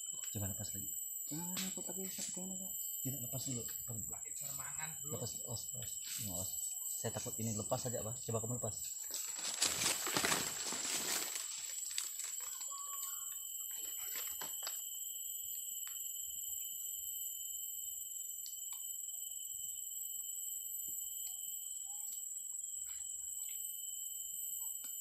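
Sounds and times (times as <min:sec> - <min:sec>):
insect chorus: 0:00.0 - 0:25.0
leaves and twigs rustling: 0:08.9 - 0:14.8.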